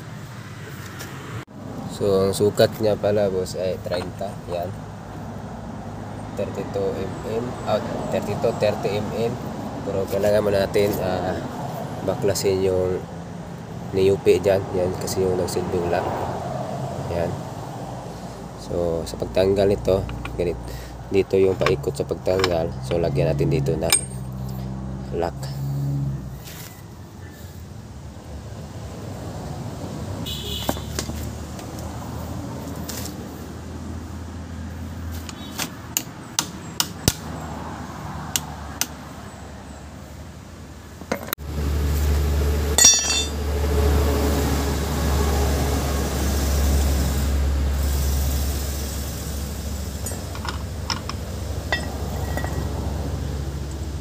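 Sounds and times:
ringing metal clatter: 23.8s - 24.4s, 42.8s - 43.4s, 50.0s - 52.7s.

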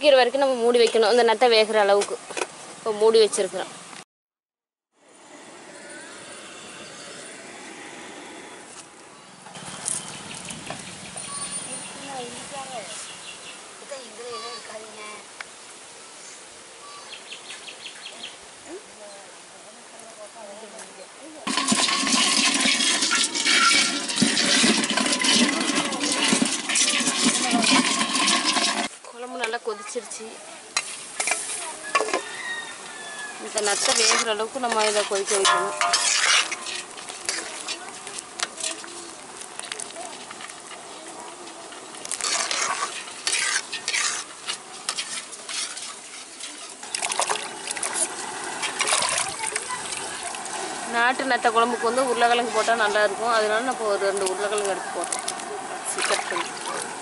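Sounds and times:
crabs scratching in metal basin: 21.5s - 29.0s, 30.8s - 57.0s
hands sloshing in water: 46.8s - 50.8s, 54.6s - 57.0s.

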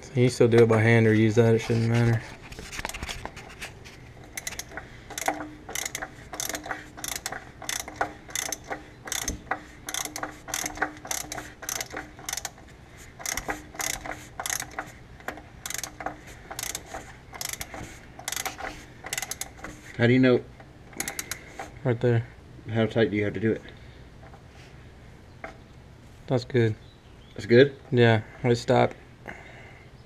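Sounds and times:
socket ratchet clicking: 4.2s - 12.6s, 13.2s - 19.7s, 21.0s - 21.5s.

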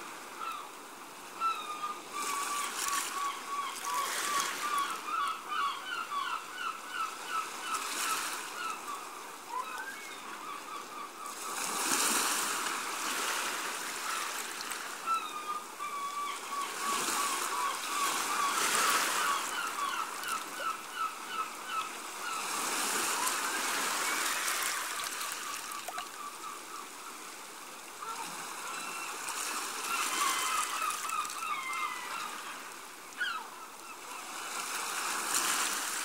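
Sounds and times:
waves washing on sandy shore: 21.7s - 26.3s.

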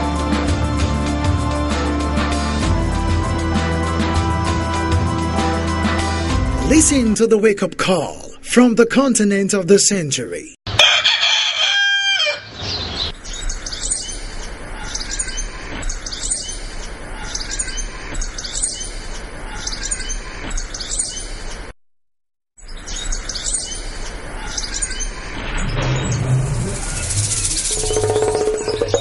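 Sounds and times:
music: 0.0s - 7.2s
bird chirping: 12.6s - 21.7s, 22.6s - 29.0s.

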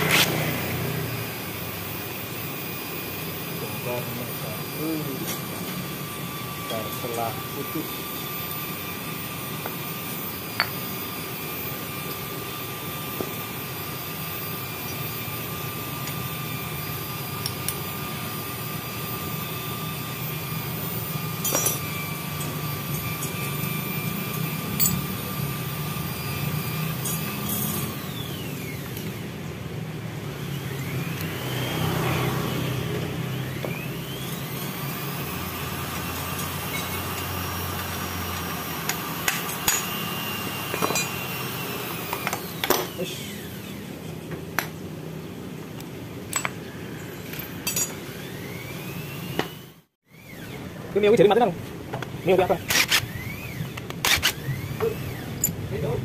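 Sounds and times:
engine hum: 0.0s - 6.0s, 21.3s - 39.9s.

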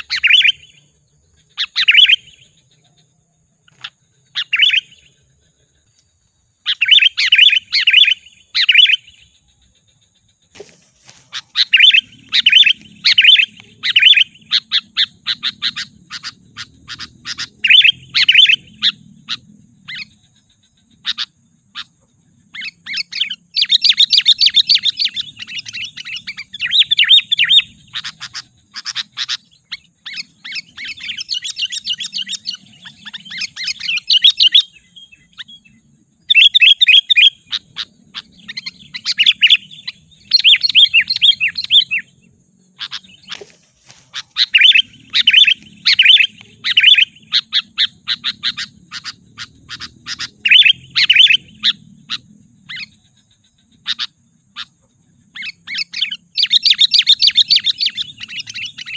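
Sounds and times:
bulbul chirping: 3.7s - 5.2s, 6.6s - 20.2s, 22.6s - 42.1s, 42.8s - 54.8s.

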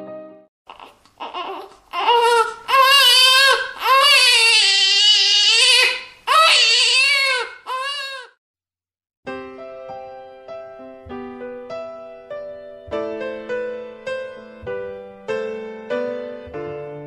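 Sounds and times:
newborn baby crying: 0.7s - 8.4s.

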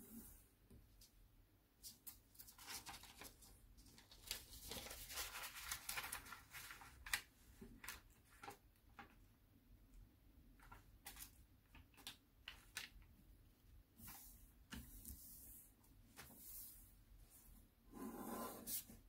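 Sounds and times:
paper rustling and crinkling: 1.8s - 9.3s, 10.6s - 13.1s.

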